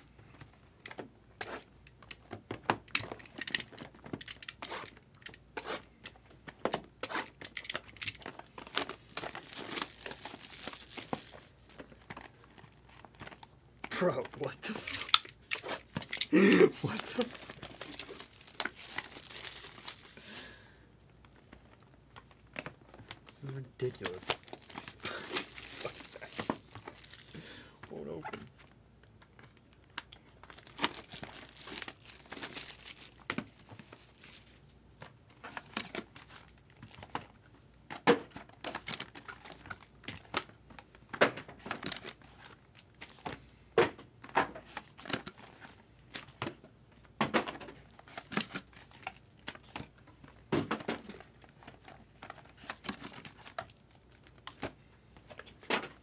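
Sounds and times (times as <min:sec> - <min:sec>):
plastic wrapping tearing and crinkling: 0:07.0 - 0:20.6, 0:21.6 - 0:27.4, 0:29.7 - 0:34.7.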